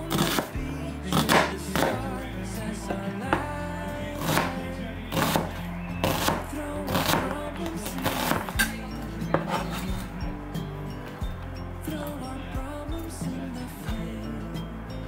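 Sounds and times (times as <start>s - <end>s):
background music: 0.0s - 15.0s
knife chopping on cutting board: 0.1s - 0.5s, 1.2s - 2.0s, 4.2s - 7.3s, 9.3s - 9.8s.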